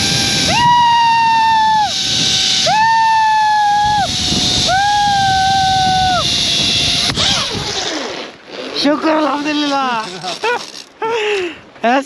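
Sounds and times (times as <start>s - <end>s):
long high tones: 0.0s - 7.1s
rushing wind: 0.0s - 9.7s
zipline cable whine: 0.0s - 11.2s.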